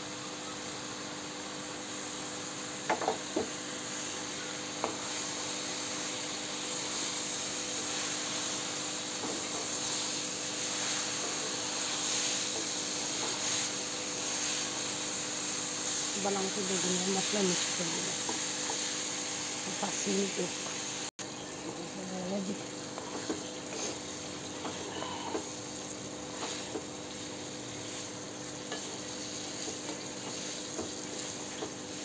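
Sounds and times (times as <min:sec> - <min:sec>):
vegetables sizzling in hot oil: 0:00.0 - 0:32.0
vegetable pieces knocking into pan: 0:02.8 - 0:03.6.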